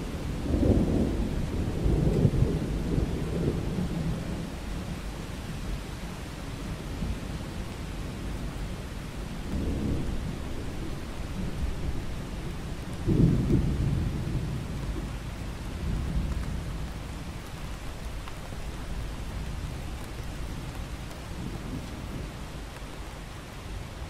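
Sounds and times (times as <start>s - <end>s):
steady rain: 0.0s - 24.0s
thunder rumbling: 0.2s - 5.0s, 9.3s - 17.8s.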